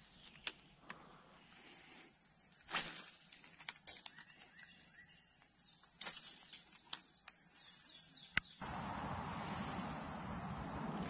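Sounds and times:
faint birds chirping: 0.0 - 11.0
small rustles and clicks: 2.6 - 7.7
steady rushing noise: 8.6 - 11.0.

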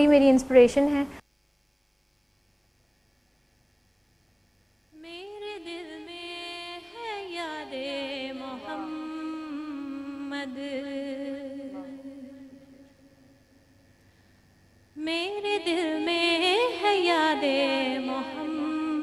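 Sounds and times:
woman singing unaccompanied: 4.9 - 13.2, 15.0 - 19.0.

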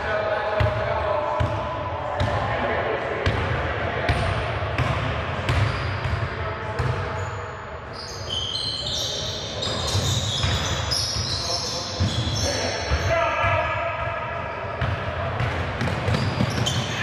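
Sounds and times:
sneakers squeaking on hardwood: 7.9 - 13.1, 15.8 - 17.0.

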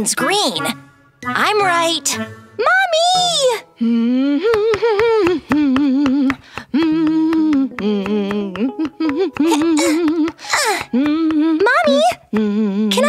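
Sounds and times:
woman humming: 3.7 - 13.0.

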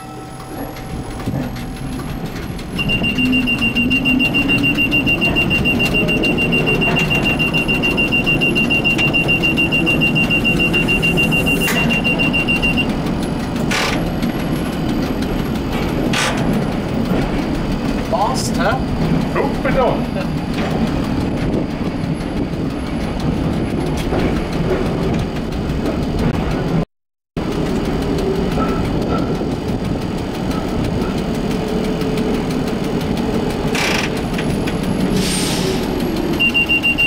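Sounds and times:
high wheel squeal: 0.0 - 14.9, 33.6 - 37.0
streetcar wheels and motors rumbling: 0.0 - 37.0.

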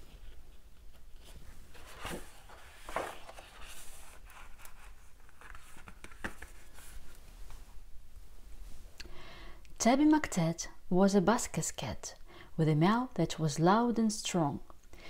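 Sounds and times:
paper pages rustling: 0.1 - 7.6.

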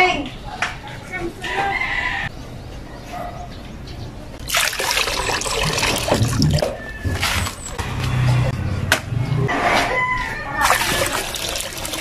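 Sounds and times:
coconut water pouring into basin: 4.4 - 7.6, 10.6 - 12.0.

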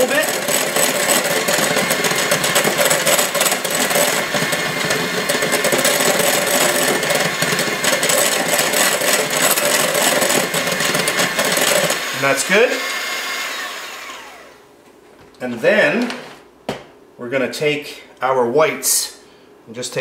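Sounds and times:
electric hand mixer whisking batter: 0.0 - 14.6.

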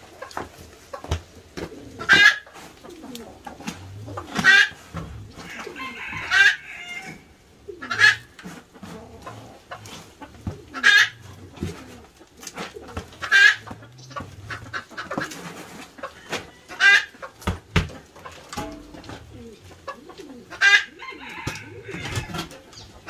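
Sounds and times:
chicken calling loudly: 4.1 - 8.3.

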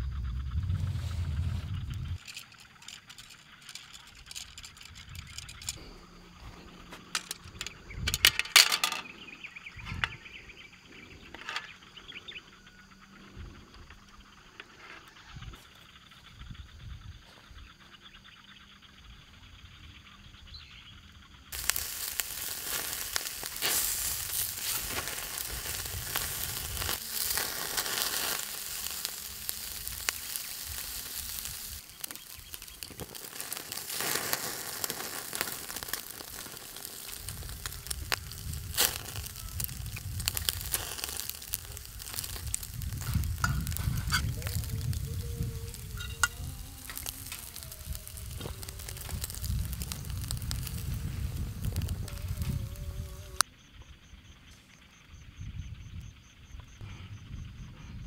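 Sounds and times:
sharp pops and crackles: 0.6 - 5.9, 6.6 - 10.4, 21.5 - 53.5
meat sizzling on a grill: 21.5 - 53.4.

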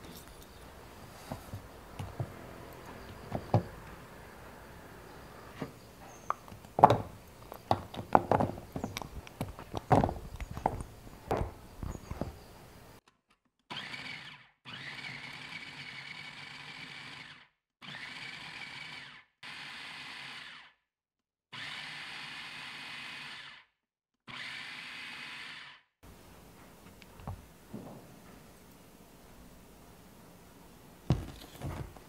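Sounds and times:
food processor pulsing: 13.7 - 20.8, 21.6 - 23.7, 24.3 - 25.8.

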